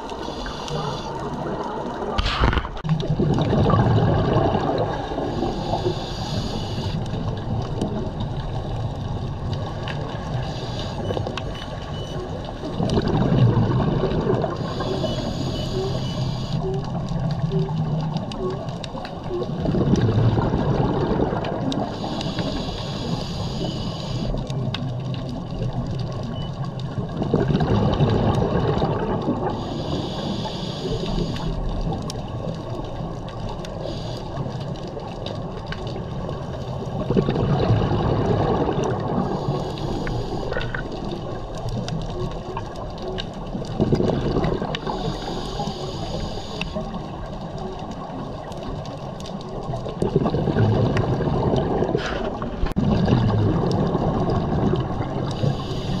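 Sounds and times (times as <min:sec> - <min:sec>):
exhaled bubbles gurgling: 0:00.0 - 0:56.0
regulator inhale hiss: 0:00.2 - 0:01.2, 0:05.3 - 0:07.2, 0:10.4 - 0:11.1, 0:14.6 - 0:16.6, 0:21.9 - 0:24.4, 0:29.5 - 0:31.6, 0:33.8 - 0:34.6, 0:39.2 - 0:40.8, 0:44.8 - 0:46.9, 0:55.3 - 0:56.0.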